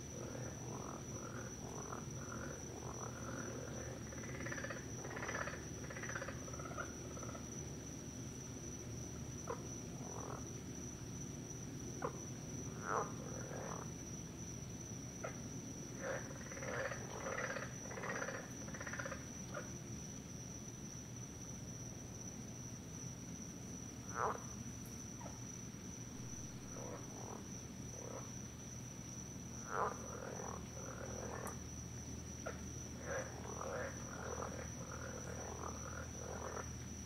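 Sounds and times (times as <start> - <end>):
frogs calling: 0.0 - 7.6, 9.4 - 10.6, 11.9 - 14.2, 15.1 - 19.8, 24.0 - 37.0.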